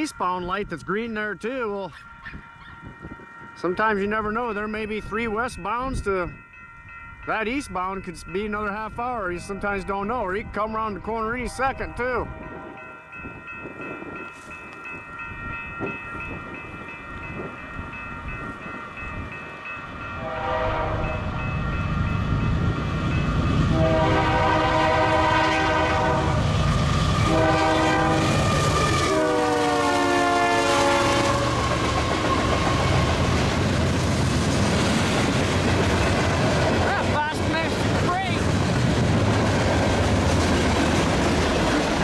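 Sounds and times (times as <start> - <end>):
crossing bell ringing: 0.0 - 42.0
locomotive air horn blasts: 20.2 - 21.3, 23.7 - 26.5, 27.2 - 32.2.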